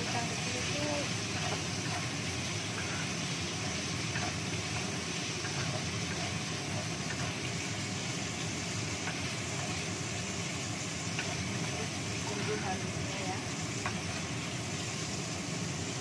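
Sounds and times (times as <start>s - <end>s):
wooden spatula stirring: 0.0s - 9.9s
shrimp sizzling in oil: 0.0s - 16.0s
steady machine hum: 0.0s - 16.0s.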